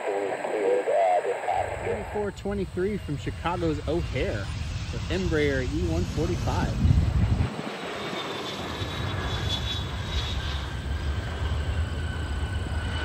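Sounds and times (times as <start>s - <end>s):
jet engine rumble: 0.0s - 13.0s.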